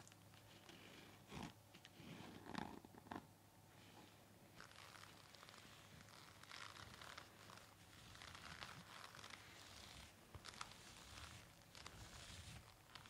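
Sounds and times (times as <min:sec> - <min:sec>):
scratching and rubbing on face mask: 0:03.9 - 0:13.0.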